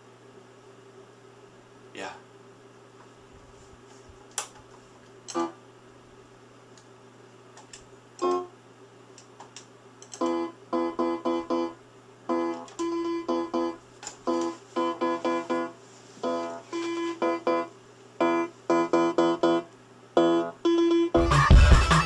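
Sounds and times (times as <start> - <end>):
electronic keyboard guitar-like notes: 10.2 - 11.7, 12.3 - 22.0.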